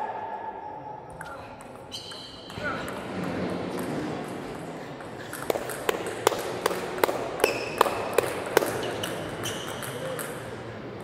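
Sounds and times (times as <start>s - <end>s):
table tennis ball bouncing: 1.1s - 10.6s
shoes squeaking on floor: 1.9s - 2.6s.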